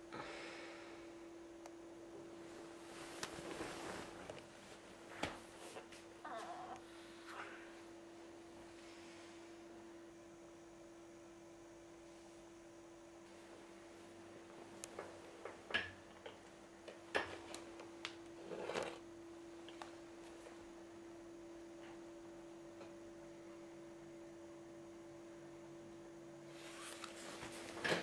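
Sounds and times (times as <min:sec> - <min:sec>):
electrical hum: 0:00.0 - 0:28.0.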